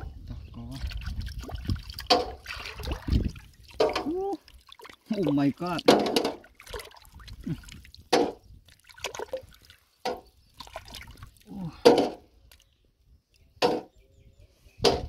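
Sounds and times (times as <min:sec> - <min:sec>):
hand squelching in wet mud: 0:00.8 - 0:05.3, 0:06.5 - 0:11.7.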